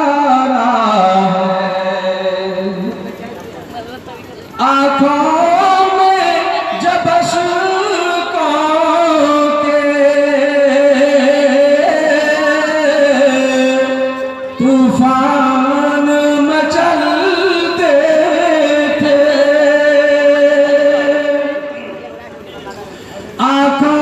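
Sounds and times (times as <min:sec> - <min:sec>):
man singing into a microphone: 0:00.0 - 0:03.3, 0:04.6 - 0:24.0.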